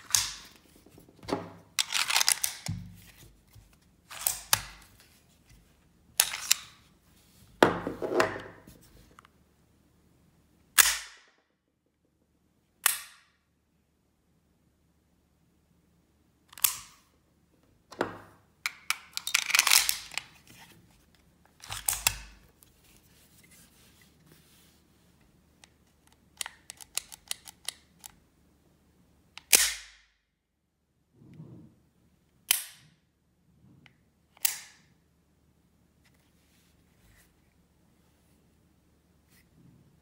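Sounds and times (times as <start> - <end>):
pistol metallic clicks: 12.8 - 13.4, 29.4 - 30.0, 34.4 - 34.9.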